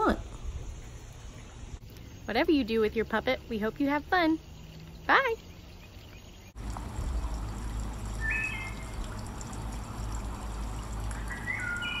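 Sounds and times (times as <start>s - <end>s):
trickling stream water: 0.0s - 12.0s
short high whistled calls: 8.2s - 8.9s, 11.2s - 12.0s.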